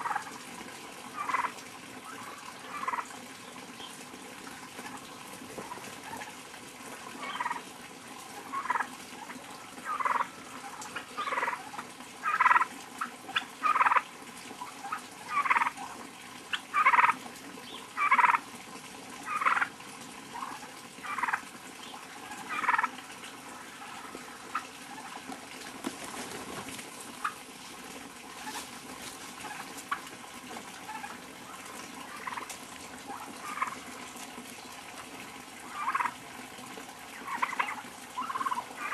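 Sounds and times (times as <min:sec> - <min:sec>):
turkeys calling: 0:00.0 - 0:00.5, 0:01.1 - 0:18.4, 0:19.2 - 0:38.9.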